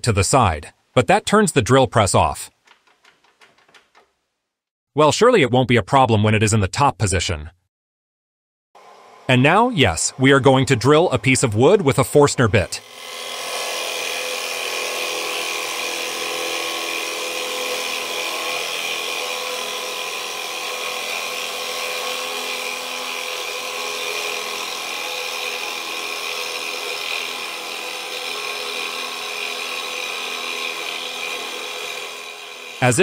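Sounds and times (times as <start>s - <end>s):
drill press boring into wood: 12.4s - 32.9s.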